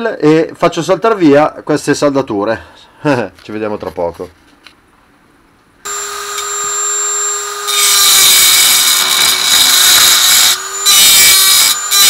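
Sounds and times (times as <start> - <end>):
rotary tool grinding metal: 5.9 - 12.0
rotary tool whining: 5.9 - 12.0.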